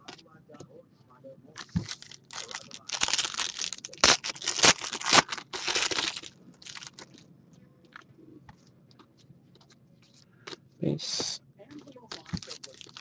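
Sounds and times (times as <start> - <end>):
foil pack crinkling and tearing: 1.6 - 7.2, 12.1 - 13.0.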